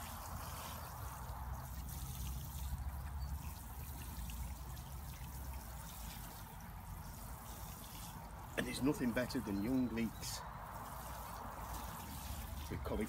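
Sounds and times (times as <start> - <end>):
water showering onto soil: 0.0 - 13.0.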